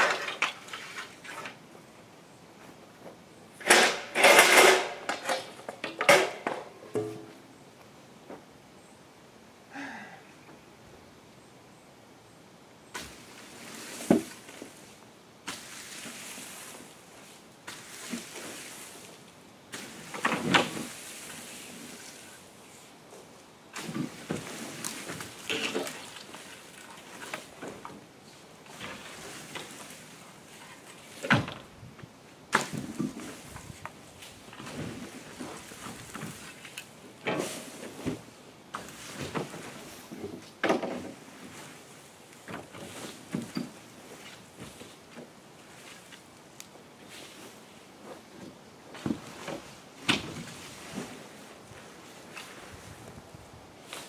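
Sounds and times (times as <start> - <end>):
branches rustling and scraping: 12.9 - 54.0
branches knocking wooden box: 32.5 - 34.0.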